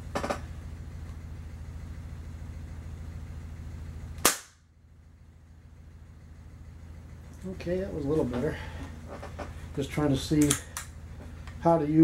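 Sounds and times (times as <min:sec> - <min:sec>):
steady low hum: 0:00.0 - 0:12.0
air rifle shot: 0:04.2 - 0:04.6.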